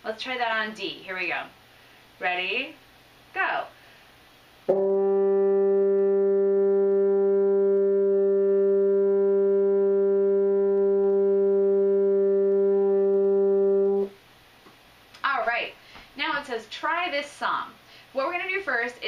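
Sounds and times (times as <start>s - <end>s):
french horn long note: 4.7s - 14.2s.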